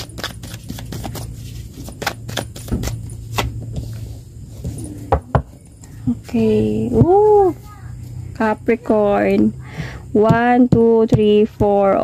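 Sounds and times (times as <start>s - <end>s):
cards flicking and snapping: 0.0s - 3.6s
low hum: 0.2s - 10.2s.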